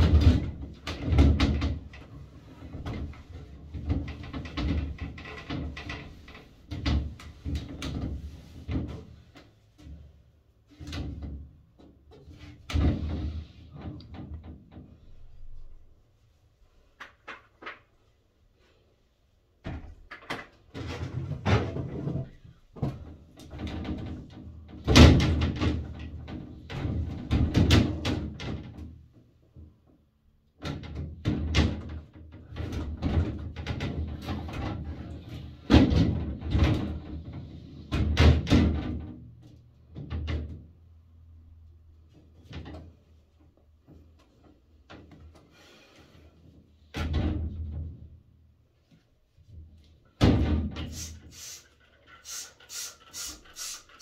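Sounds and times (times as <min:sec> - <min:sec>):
glass shower door knocking and rattling: 0:00.0 - 0:02.1, 0:02.7 - 0:09.0.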